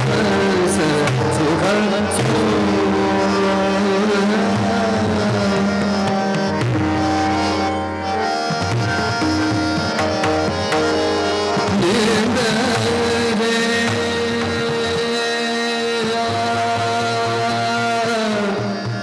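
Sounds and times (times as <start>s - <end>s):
man singing classical vocals: 0.0s - 6.6s, 11.7s - 19.0s
harmonium: 0.0s - 19.0s
tabla: 0.0s - 19.0s
tanpura drone: 0.0s - 19.0s.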